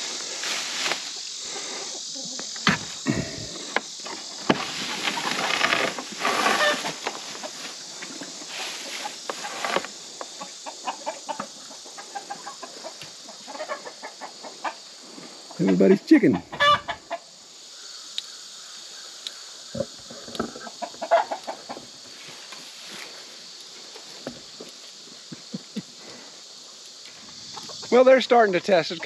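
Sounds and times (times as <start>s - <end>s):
chickens clucking: 3.0s - 17.4s, 19.7s - 22.1s, 27.2s - 29.0s.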